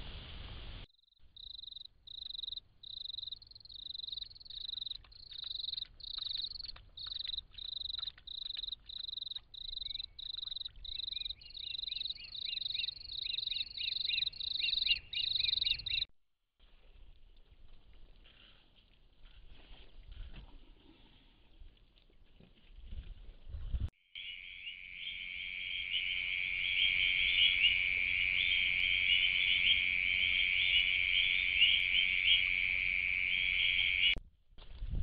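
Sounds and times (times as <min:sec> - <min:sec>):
crickets pulsed chirping: 0:00.9 - 0:16.1, 0:24.1 - 0:34.2.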